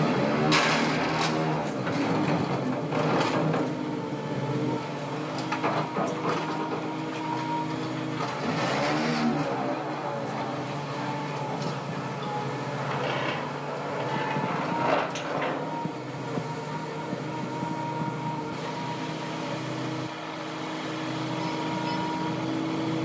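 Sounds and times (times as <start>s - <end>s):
excavator engine and hydraulics: 0.0s - 23.0s.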